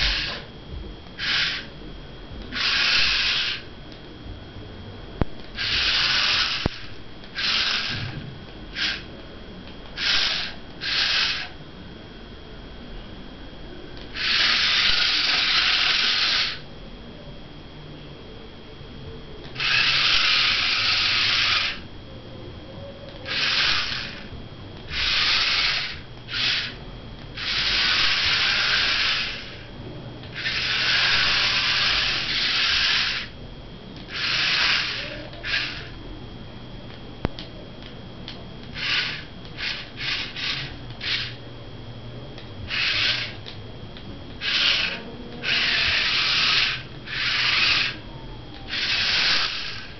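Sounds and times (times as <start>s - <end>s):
small electric motors whirring: 0.0s - 0.5s, 1.1s - 1.8s, 2.4s - 3.7s, 5.4s - 9.2s, 9.8s - 11.6s, 14.0s - 16.7s, 19.4s - 21.9s, 23.1s - 33.3s, 34.0s - 36.0s, 38.6s - 41.4s, 42.6s - 43.6s, 44.3s - 49.9s.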